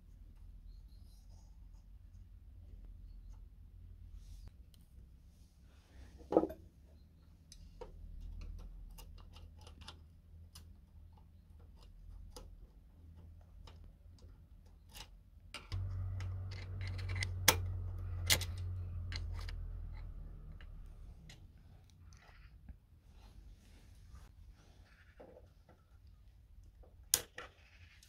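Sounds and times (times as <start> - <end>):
low rumble: 15.7 - 21.4.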